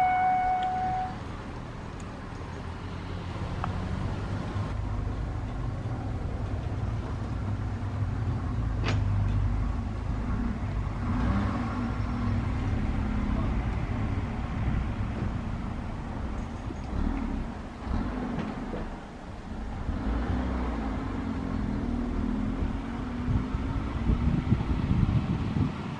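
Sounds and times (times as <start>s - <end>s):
vehicle engine rumbling: 0.0s - 25.9s.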